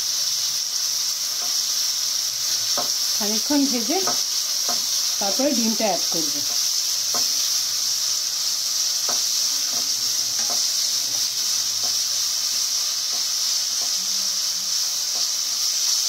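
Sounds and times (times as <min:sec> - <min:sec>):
food sizzling in hot oil: 0:00.0 - 0:16.0
spatula scraping pan: 0:08.9 - 0:14.1.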